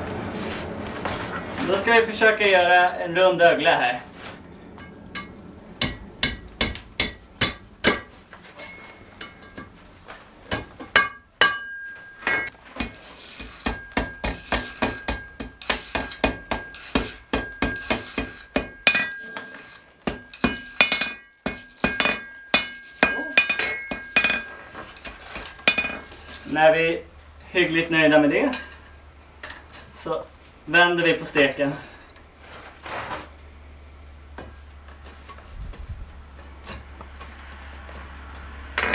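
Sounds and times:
hammer striking iron on anvil: 4.8 - 8.1, 10.5 - 26.4.

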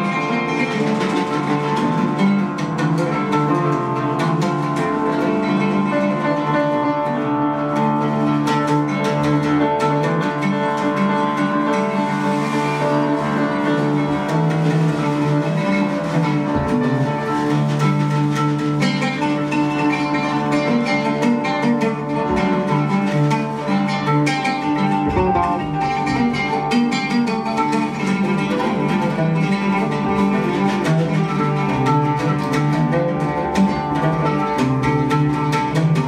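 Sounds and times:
electric bass notes: 0.0 - 36.0
guitar plucked in quick runs: 0.0 - 36.0
percussive hits: 12.2 - 36.0.

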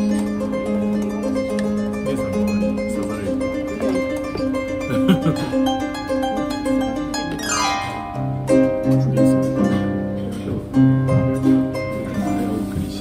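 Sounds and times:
harp glissando: 0.0 - 12.7
harp music: 0.0 - 13.0.

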